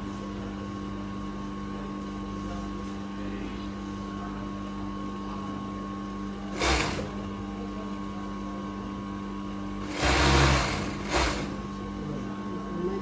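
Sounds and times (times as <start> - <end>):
steady electric hum: 0.0 - 13.0
sewing machine stitching: 6.5 - 7.2, 9.8 - 11.6.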